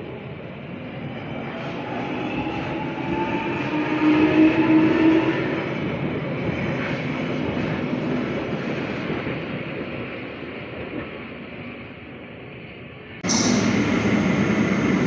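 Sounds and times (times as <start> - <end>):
train approaching in tunnel: 0.0 - 15.0
train pulling out: 13.2 - 15.0.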